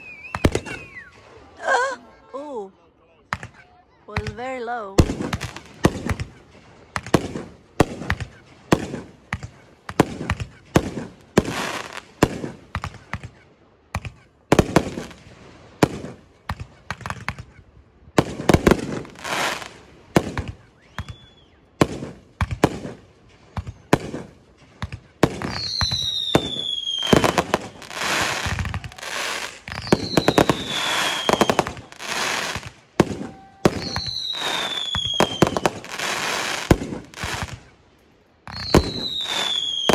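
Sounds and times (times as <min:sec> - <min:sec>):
high whistles falling in pitch: 0:00.0 - 0:01.3, 0:20.8 - 0:21.7, 0:25.5 - 0:32.5, 0:33.2 - 0:35.7, 0:38.5 - 0:39.9
fireworks crackling: 0:00.0 - 0:02.0, 0:03.3 - 0:13.4, 0:14.0 - 0:39.9
fireworks exploding: 0:00.0 - 0:02.0, 0:03.2 - 0:39.9.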